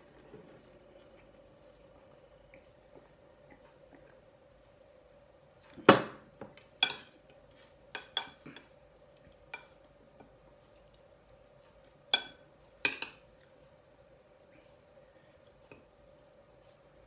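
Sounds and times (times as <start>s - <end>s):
faint steady hum: 0.0s - 17.0s
metal spoon clinking on plate: 6.8s - 7.2s, 7.9s - 8.7s, 12.1s - 13.2s.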